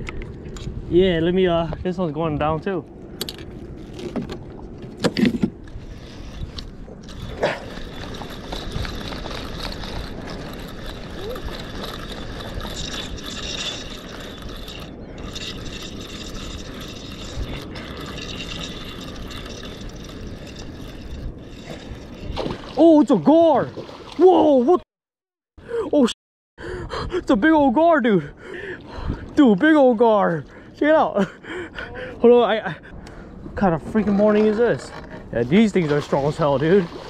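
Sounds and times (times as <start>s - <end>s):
water lapping against boat: 5.6s - 24.7s, 34.0s - 37.0s
fishing reel gears whirring: 5.8s - 22.4s.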